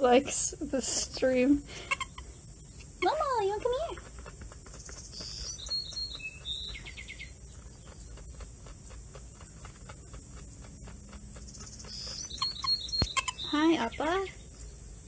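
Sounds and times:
marmosets chirping and trilling: 1.7s - 4.0s, 4.6s - 8.5s, 10.0s - 14.7s.

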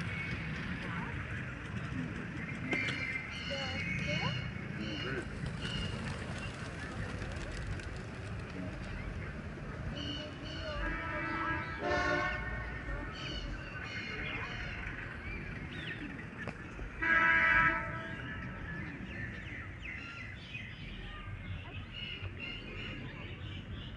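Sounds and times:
birds chirping: 0.0s - 23.9s
horn blasting: 10.8s - 12.8s, 17.0s - 18.4s.

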